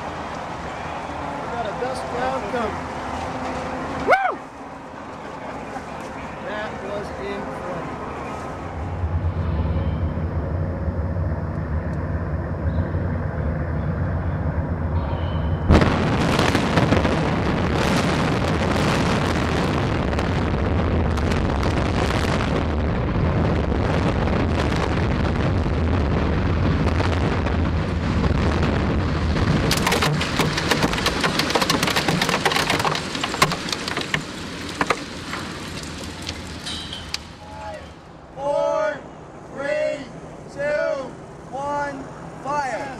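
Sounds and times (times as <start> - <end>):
low steady hum: 0.0 - 17.4
rumble of building collapsing: 8.3 - 38.0
crackling string of detonations: 15.6 - 37.6.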